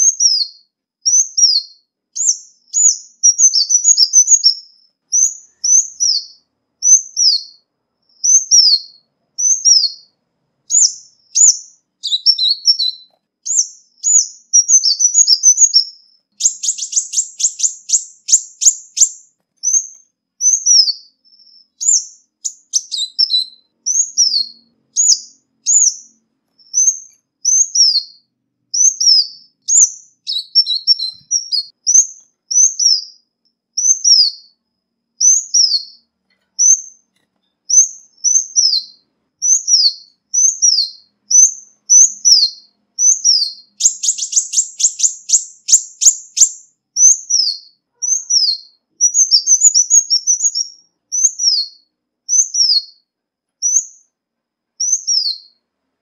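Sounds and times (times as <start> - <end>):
bird twittering: 0.0 - 34.6, 35.2 - 54.1, 54.8 - 55.6
bird ticking notes: 10.7 - 28.1
bird calling high notes: 47.9 - 50.8.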